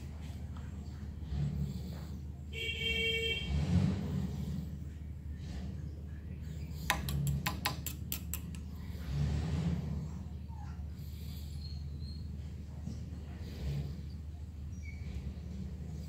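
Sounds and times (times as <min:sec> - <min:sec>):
sharp clicks: 0:06.9 - 0:08.7.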